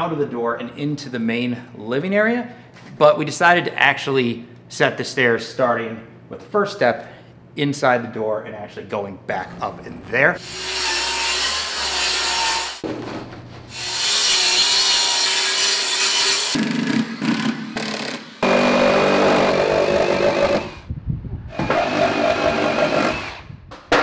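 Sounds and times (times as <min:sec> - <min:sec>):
circular saw cutting plywood: 0:10.4 - 0:12.8, 0:13.7 - 0:20.8, 0:21.6 - 0:23.4
reciprocating saw cutting plywood: 0:13.7 - 0:20.8, 0:21.6 - 0:23.4.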